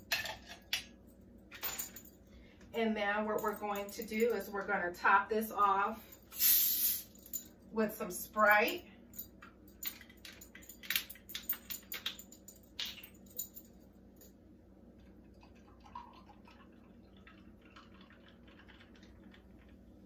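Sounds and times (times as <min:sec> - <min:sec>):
soda pouring and fizzing: 0:15.4 - 0:19.8.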